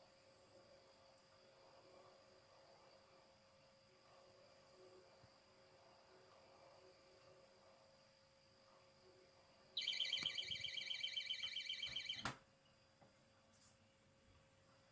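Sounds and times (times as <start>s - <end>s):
warbling electronic alarm beep: 9.8s - 12.2s.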